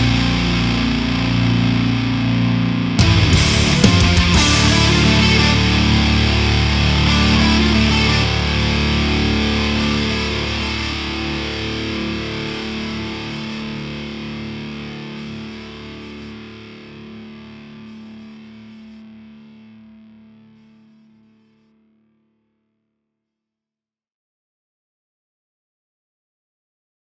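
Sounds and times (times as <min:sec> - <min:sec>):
rock music: 0:00.0 - 0:16.2
distorted electric guitar chord: 0:00.0 - 0:20.8.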